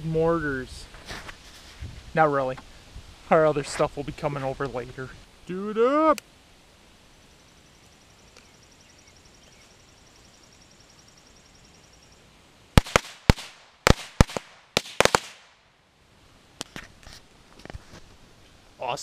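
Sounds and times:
firework bangs: 12.8 - 15.6.

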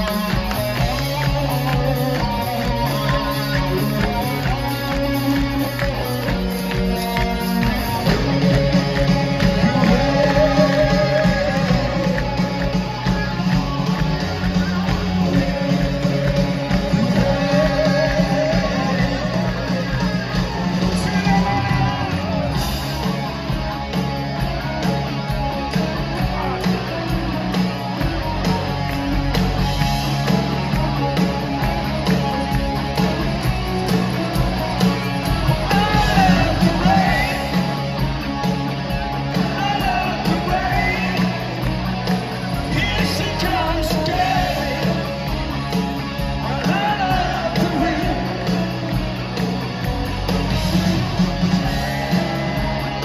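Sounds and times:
person singing: 0.0 - 23.2, 33.7 - 38.0, 39.2 - 45.7, 46.3 - 49.2
rock band playing live: 0.0 - 53.0.

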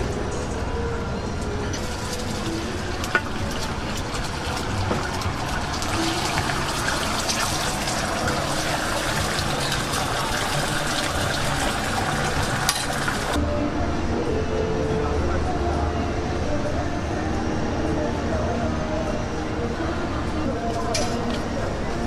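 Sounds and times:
food sizzling in frying: 1.8 - 13.4.

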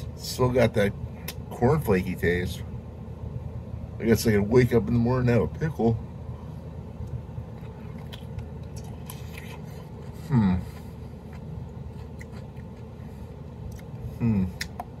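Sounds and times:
pickle crunching: 7.0 - 15.0
man humming: 10.2 - 10.8, 14.2 - 14.7.

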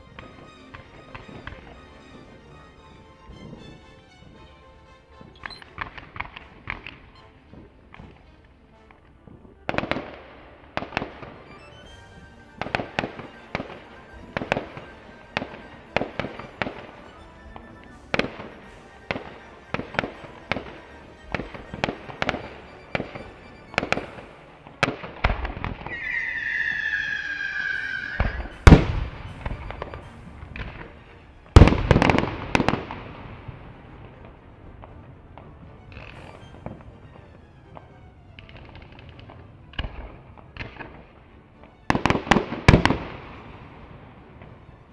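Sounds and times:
fireworks bangs: 5.2 - 26.0, 27.8 - 41.1
falling firework whistle: 11.5 - 24.5, 25.9 - 30.9.

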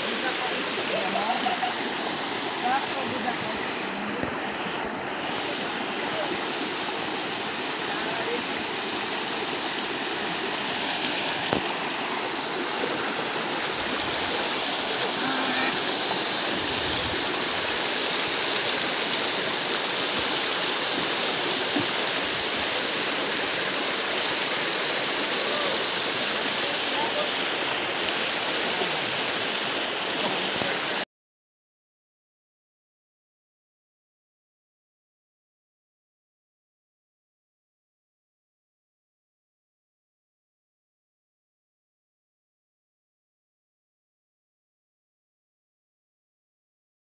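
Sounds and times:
stream rushing over stones: 0.0 - 31.0.

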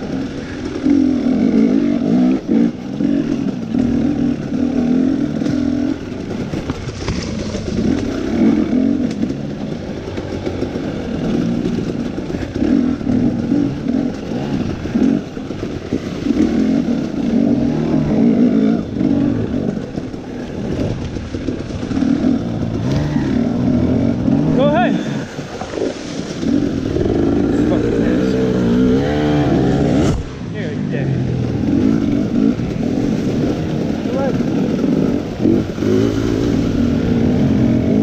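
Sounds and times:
dirt bike engine revving: 0.0 - 38.0
knocks and rattles: 3.3 - 30.4.

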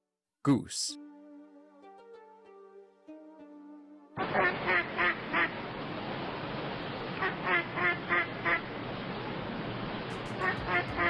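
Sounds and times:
duck quacking: 4.2 - 5.6, 7.2 - 8.6, 10.3 - 11.0
steady background hiss: 4.2 - 11.0.

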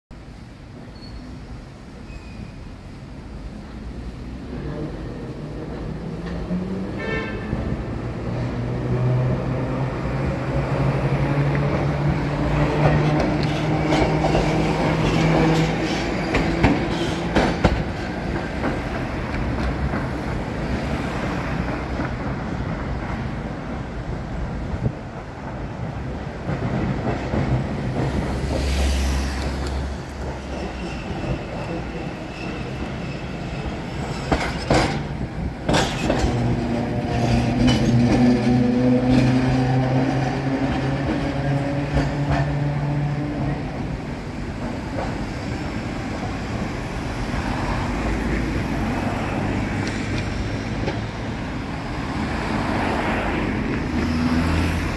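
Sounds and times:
passing road traffic: 0.2 - 54.9
streetcar motor hum: 0.2 - 54.9
wheels clicking over rail joints: 33.6 - 46.7.

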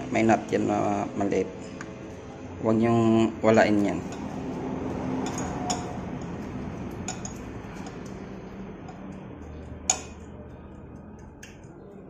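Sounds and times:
small metallic clicks and clinks: 7.0 - 8.2.

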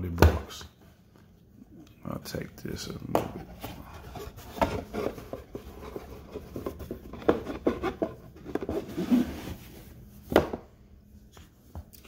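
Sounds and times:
gloved hands handling box: 3.1 - 10.6.

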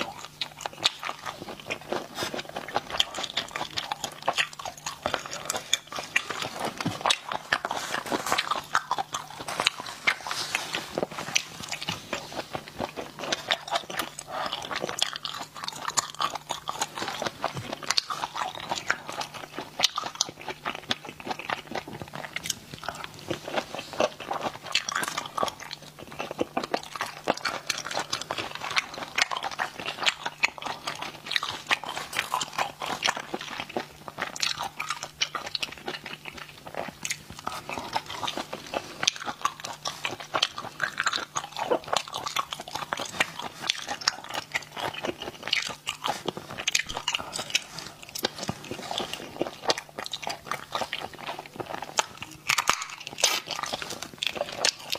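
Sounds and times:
wet sucking and chewing: 0.0 - 54.9.

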